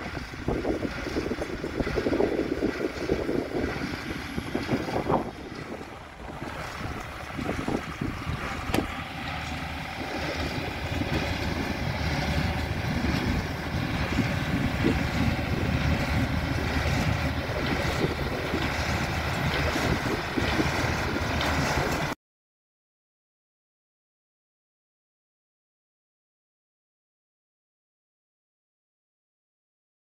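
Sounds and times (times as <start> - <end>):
tractor diesel engine under load: 0.0 - 22.2.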